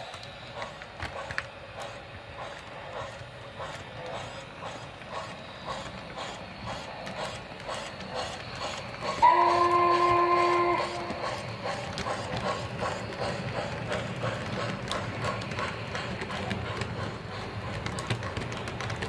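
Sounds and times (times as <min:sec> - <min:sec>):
model train chuffing: 0:00.0 - 0:19.0
wheels on track: 0:00.0 - 0:19.0
chime steam whistle: 0:09.2 - 0:11.2.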